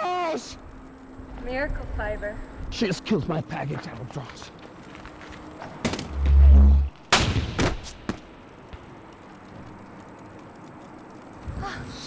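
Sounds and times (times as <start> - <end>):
sharp cracks: 5.8 - 11.5
deep low boom: 6.1 - 7.0.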